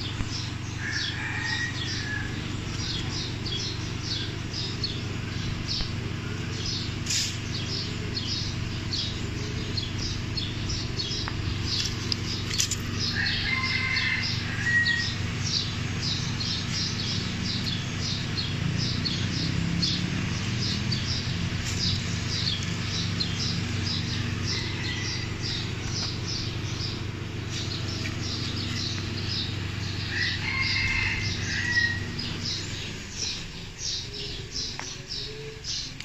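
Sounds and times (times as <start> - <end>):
small birds chirping: 0.0 - 36.0
steady low hum: 0.0 - 36.0.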